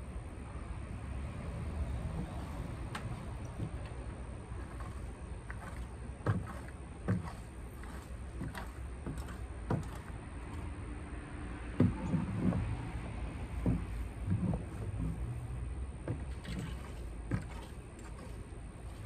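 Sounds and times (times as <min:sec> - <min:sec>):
garden tool knocking on wood: 0:05.5 - 0:10.1, 0:11.7 - 0:12.7, 0:13.6 - 0:15.2.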